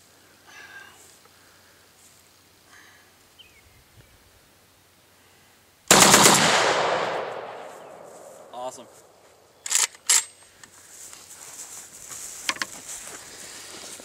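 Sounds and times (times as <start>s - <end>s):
shotgun rapid burst: 5.9s - 7.5s.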